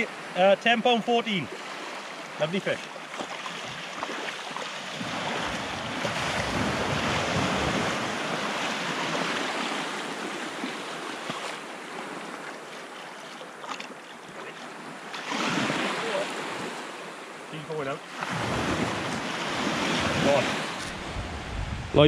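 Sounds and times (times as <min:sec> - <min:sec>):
surf waves washing on sand: 0:00.0 - 0:22.0
wind buffeting microphone: 0:05.0 - 0:09.4, 0:18.3 - 0:22.0.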